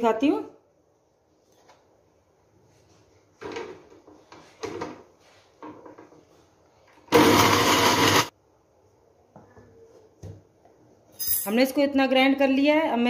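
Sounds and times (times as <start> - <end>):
mixer grinder running loudly: 7.1 - 8.3.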